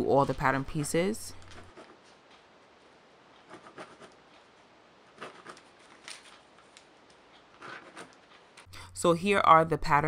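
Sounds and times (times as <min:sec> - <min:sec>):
pen scratching on paper: 0:01.4 - 0:02.0, 0:03.4 - 0:04.2, 0:05.1 - 0:05.8, 0:07.5 - 0:08.3.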